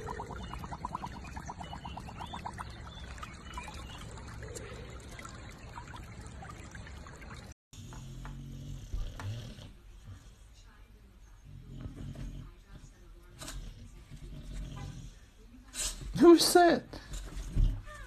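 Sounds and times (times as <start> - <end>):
high chirps: 0.0 - 4.2
water trickling in a stream: 0.0 - 7.6.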